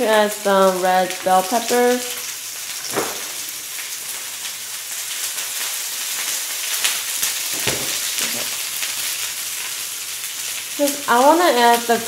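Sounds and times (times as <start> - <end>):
vegetables sizzling in oil: 0.0 - 12.0
low thump: 2.9 - 3.3.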